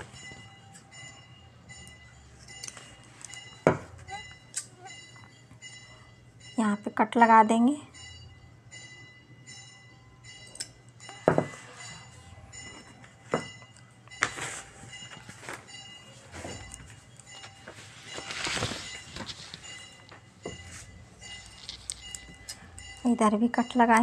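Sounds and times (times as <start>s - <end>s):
cloth rustling: 14.2s - 22.2s.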